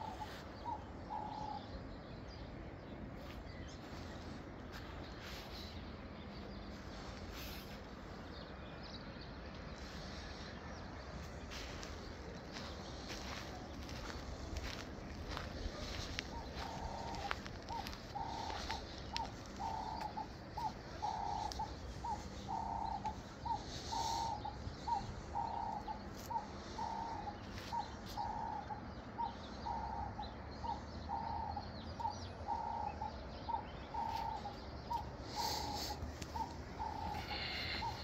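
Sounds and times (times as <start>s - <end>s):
dove cooing: 0.0s - 1.7s, 11.5s - 38.0s.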